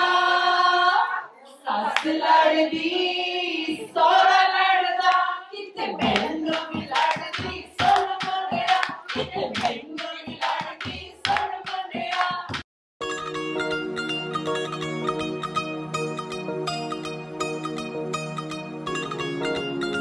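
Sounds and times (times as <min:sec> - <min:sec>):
women singing folk song: 0:00.0 - 0:12.6
drum beat: 0:06.0 - 0:12.6
hand clapping: 0:06.0 - 0:12.7.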